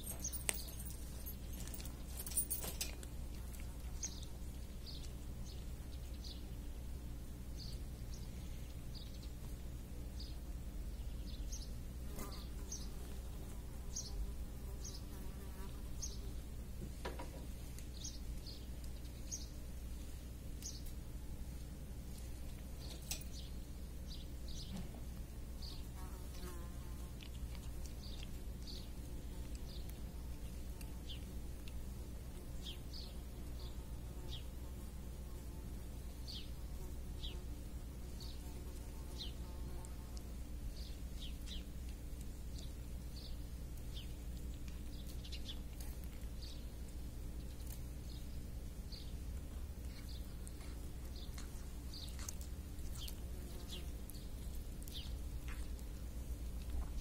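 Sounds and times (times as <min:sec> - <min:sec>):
small birds chirping: 0:00.0 - 0:57.0
steady low hum: 0:00.0 - 0:57.0
steady low rumble: 0:39.9 - 0:57.0.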